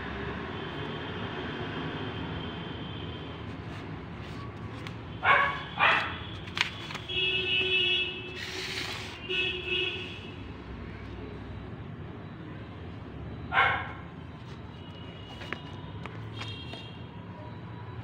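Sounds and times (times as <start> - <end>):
dog barking: 5.2 - 6.2, 13.5 - 14.0.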